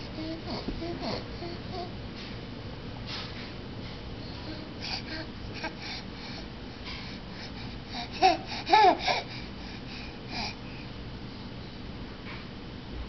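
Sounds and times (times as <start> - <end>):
baby babbling: 0.0 - 1.9, 8.0 - 9.3.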